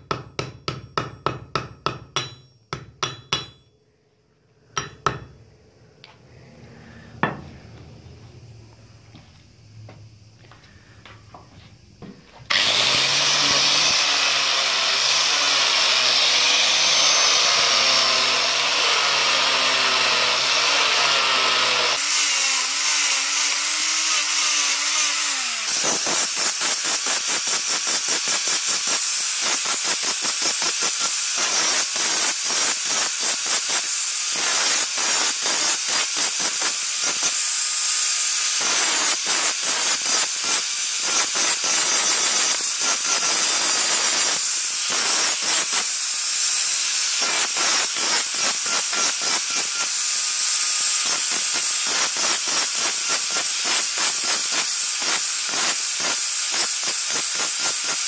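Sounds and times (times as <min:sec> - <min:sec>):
angle grinder motor hum: 0:12.5 - 0:26.7.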